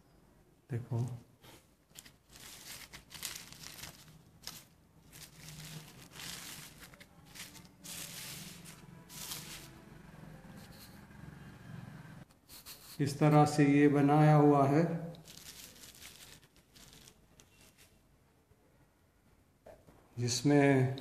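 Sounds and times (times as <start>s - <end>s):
bubble wrap crinkling: 1.8s - 9.8s, 15.1s - 17.8s.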